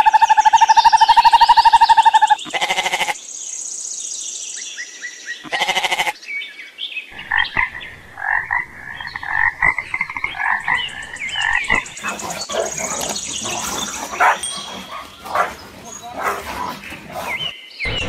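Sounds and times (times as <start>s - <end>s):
goat bleating: 2.5s - 3.2s, 5.5s - 6.2s.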